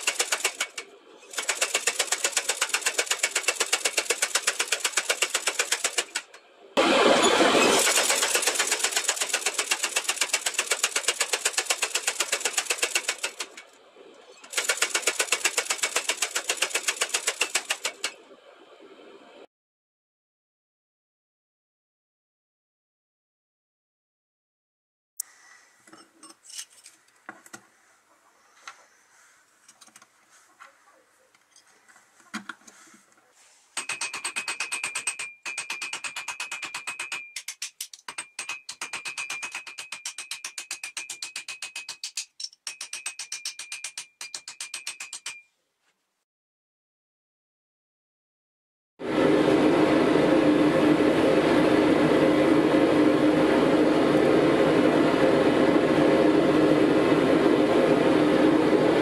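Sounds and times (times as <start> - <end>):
hammer tapping on steel pins: 33.8 - 45.5
forge roaring: 49.0 - 59.0.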